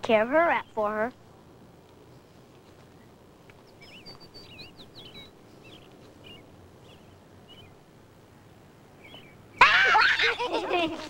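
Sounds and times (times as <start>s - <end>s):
faint steady background hum: 0.0s - 11.0s
birds chirping: 0.1s - 1.1s, 1.9s - 9.7s.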